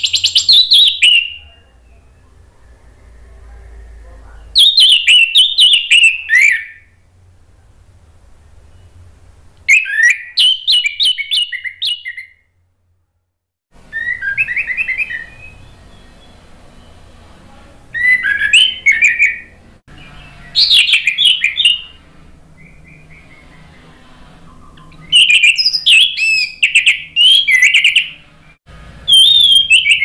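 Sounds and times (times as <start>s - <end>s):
thrush singing: 14.0s - 30.0s.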